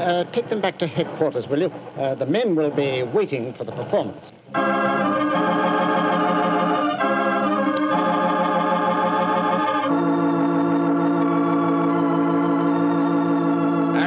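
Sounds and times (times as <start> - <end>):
organ playing sustained chords: 4.5 - 14.0.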